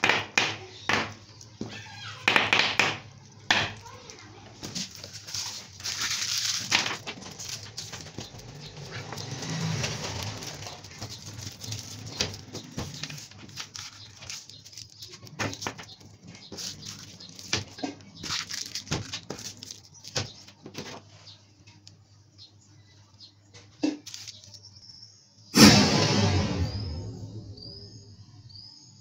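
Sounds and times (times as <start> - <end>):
plastic candy wrappers crinkling: 3.0 - 22.0, 24.0 - 24.7.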